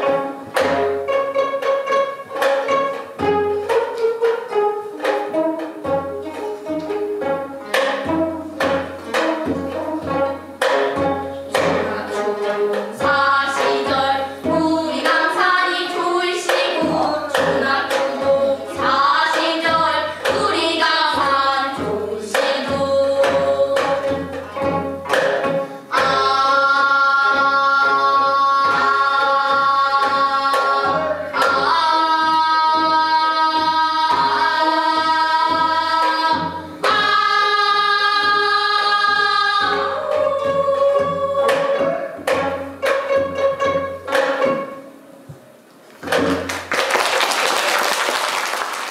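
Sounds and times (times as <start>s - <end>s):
girls singing together: 7.7s - 24.8s, 25.5s - 43.4s.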